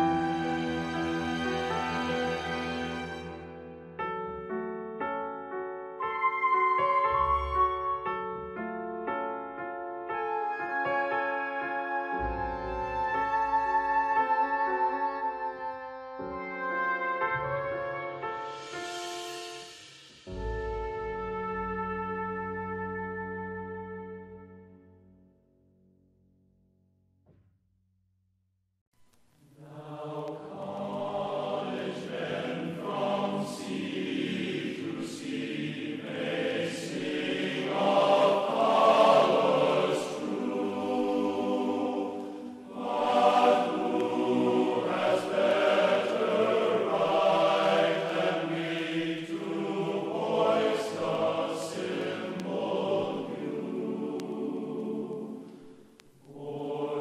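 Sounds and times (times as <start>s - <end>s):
choir chanting held notes: 29.6s - 57.0s.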